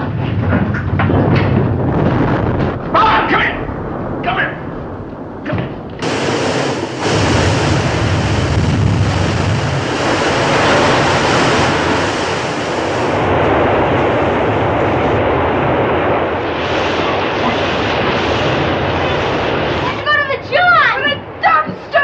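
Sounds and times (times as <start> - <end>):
water rushing into passageway: 5.4 - 22.0.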